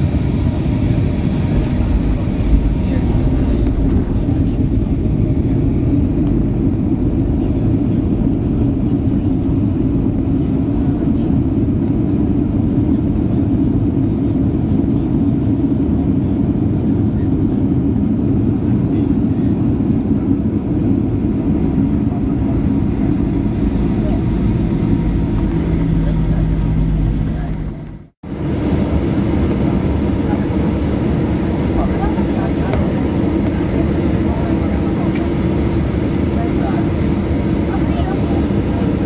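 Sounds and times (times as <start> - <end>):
airplane cabin engine rumble: 0.0 - 39.0.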